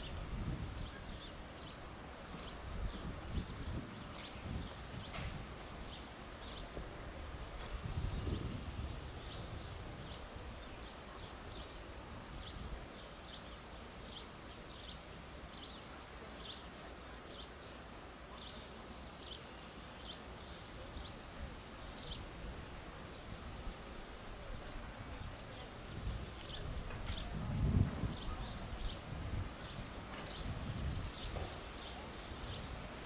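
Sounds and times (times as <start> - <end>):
small birds chirping: 18.3 - 23.7, 25.1 - 33.0.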